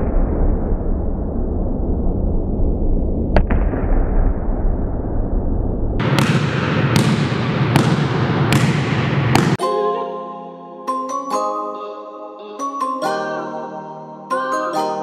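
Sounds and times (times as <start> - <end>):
steady rumbling noise: 0.0 - 9.5
ball bouncing on hall floor: 6.0 - 9.6
sharp knock: 6.0 - 9.6.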